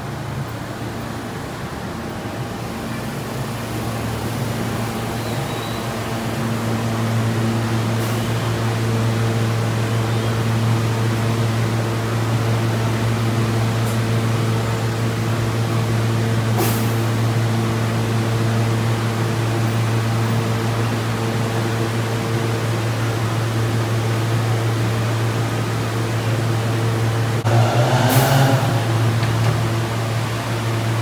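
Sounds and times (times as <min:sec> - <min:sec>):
subway car equipment humming: 0:00.0 - 0:31.0.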